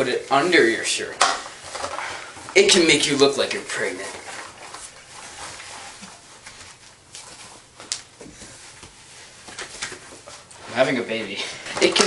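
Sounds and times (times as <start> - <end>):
rustling of clothing: 0.0 - 12.0.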